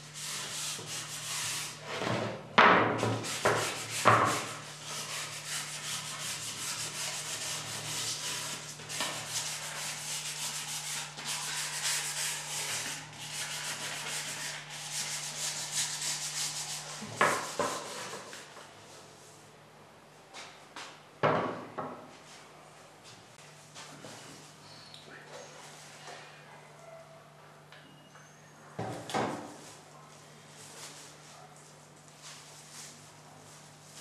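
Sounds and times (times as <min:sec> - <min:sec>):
hand sanding wood: 0:00.1 - 0:01.8, 0:03.0 - 0:18.5.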